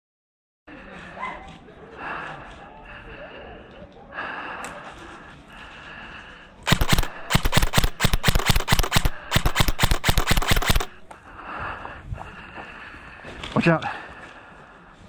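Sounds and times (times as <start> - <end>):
airsoft guns firing bursts: 6.6 - 11.1.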